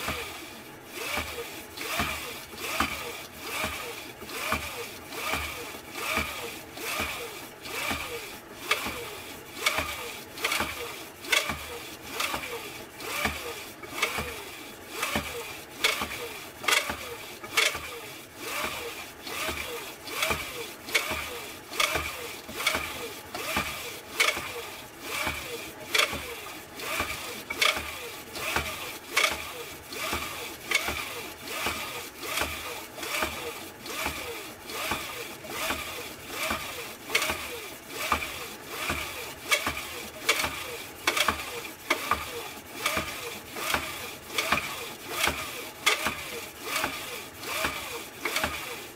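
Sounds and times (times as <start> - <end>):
spindle whirring: 0.0 - 48.9
pump drill knocks: 20.3 - 24.6, 38.2 - 46.2.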